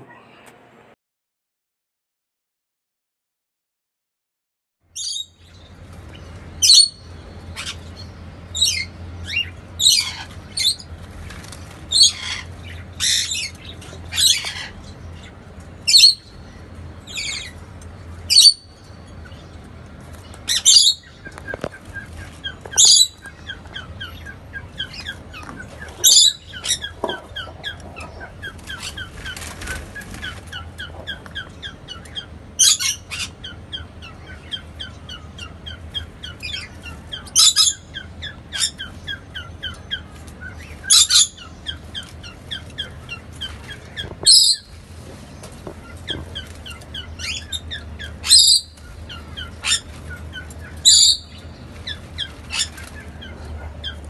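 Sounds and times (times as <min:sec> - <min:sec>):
pet birds calling: 0:04.9 - 0:54.0
soft bird chittering: 0:20.3 - 0:54.0.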